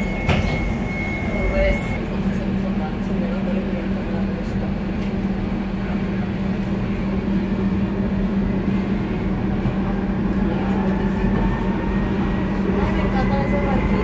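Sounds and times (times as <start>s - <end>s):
train rumbling and rolling: 0.0s - 14.0s.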